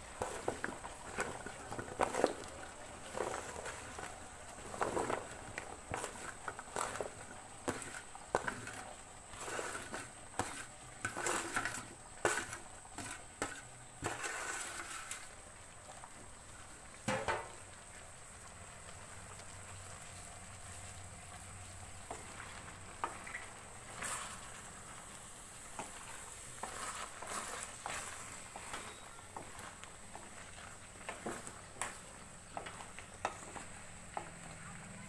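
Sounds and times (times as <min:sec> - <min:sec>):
faint steady hiss: 0:00.0 - 0:35.0
vegetables clattering into metal pan: 0:17.0 - 0:17.5.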